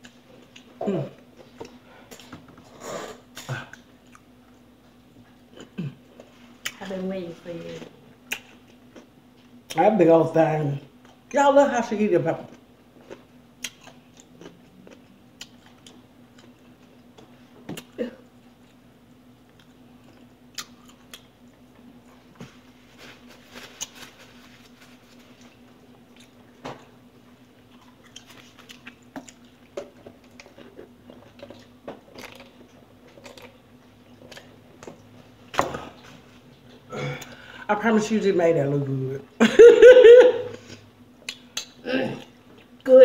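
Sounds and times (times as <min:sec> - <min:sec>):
person chewing and crunching: 0:12.5 - 0:18.8, 0:19.4 - 0:22.3, 0:23.2 - 0:35.1.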